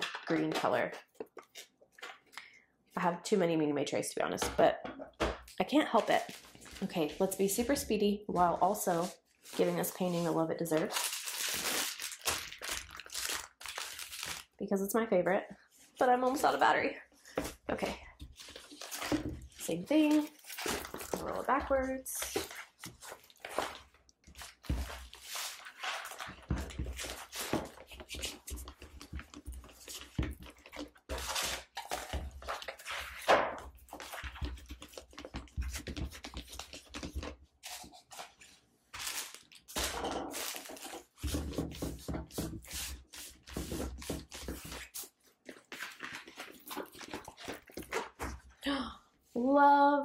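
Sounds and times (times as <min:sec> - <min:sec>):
plastic film and paper crinkling: 0:05.9 - 0:07.8, 0:08.4 - 0:14.6, 0:18.3 - 0:48.4.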